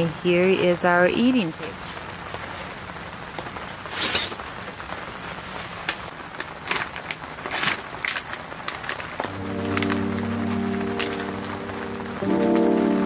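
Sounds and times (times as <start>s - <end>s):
steady rain: 0.0s - 13.0s
plastic bag crinkling: 6.4s - 11.5s.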